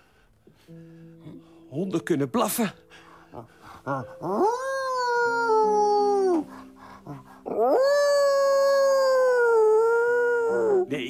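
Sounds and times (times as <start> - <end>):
person howling like a dog: 3.9 - 10.9.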